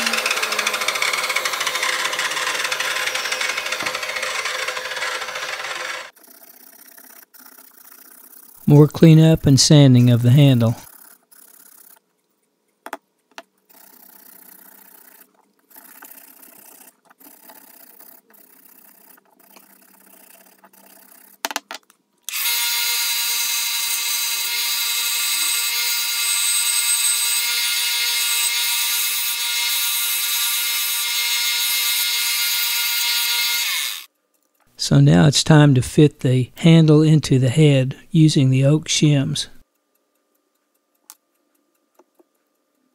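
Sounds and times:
belt sander whining: 0:00.0 - 0:12.0, 0:22.3 - 0:34.1.

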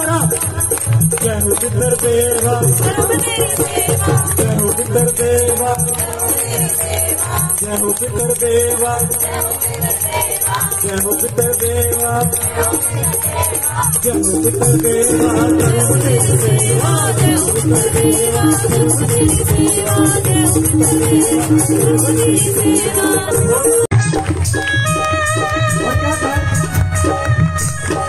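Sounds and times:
jingling rattle percussion: 0:00.0 - 0:28.0
steady drum beat: 0:00.0 - 0:28.0
held tone and melody: 0:13.3 - 0:28.0.

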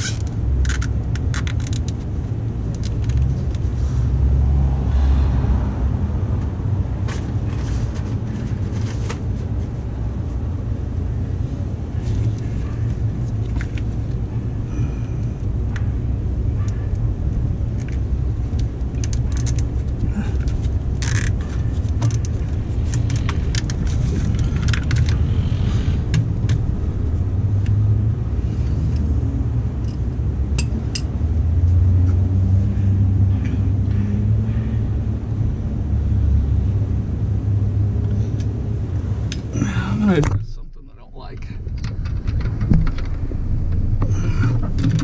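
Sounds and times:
steady low rumble: 0:00.0 - 0:45.0
cable ties clicking: 0:17.8 - 0:25.2.

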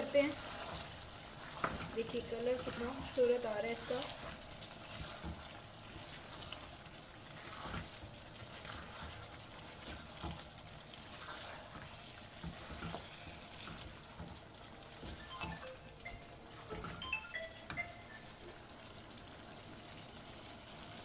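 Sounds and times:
spatula scraping pan: 0:00.0 - 0:10.4, 0:11.0 - 0:14.4
food sizzling in wok: 0:00.0 - 0:21.0.

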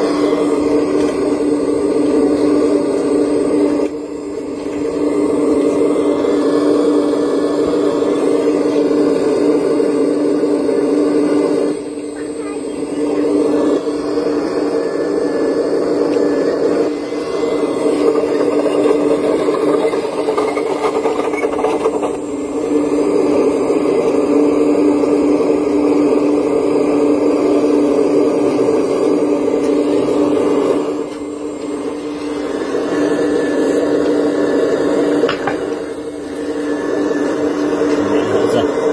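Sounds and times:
model excavator motor whirring: 0:00.0 - 0:38.9.

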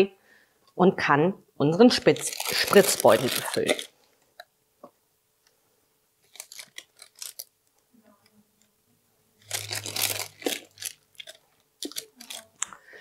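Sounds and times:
plastic bag crinkling: 0:02.0 - 0:04.2, 0:06.2 - 0:07.6, 0:09.4 - 0:12.8.

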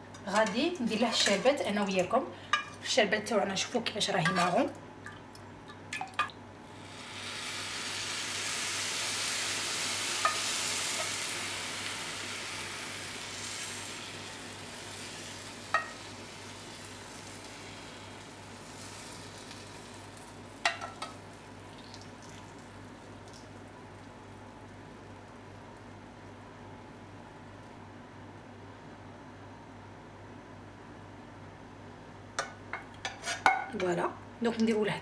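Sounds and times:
cake sizzling under syrup: 0:06.7 - 0:25.9.

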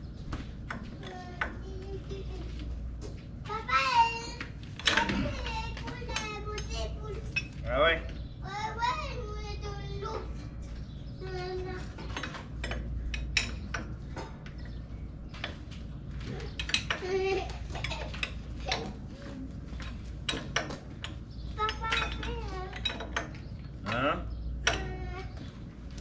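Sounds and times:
child talking: 0:01.0 - 0:07.4, 0:08.4 - 0:10.5, 0:11.2 - 0:12.2, 0:18.6 - 0:19.5, 0:21.6 - 0:23.0, 0:24.7 - 0:25.5.

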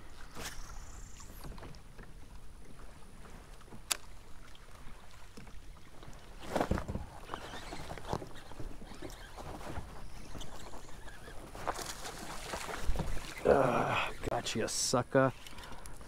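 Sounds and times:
water lapping against hull: 0:00.0 - 0:16.0
thump and rustle: 0:06.4 - 0:10.7, 0:11.5 - 0:13.4.

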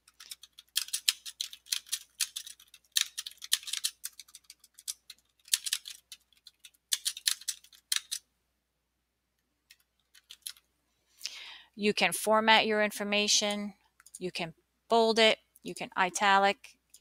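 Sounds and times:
keyboard typing: 0:00.0 - 0:08.3, 0:09.7 - 0:10.7.

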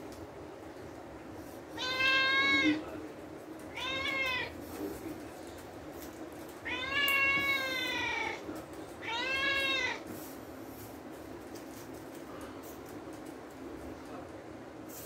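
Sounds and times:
kitten meowing: 0:03.7 - 0:04.5, 0:09.0 - 0:10.0.

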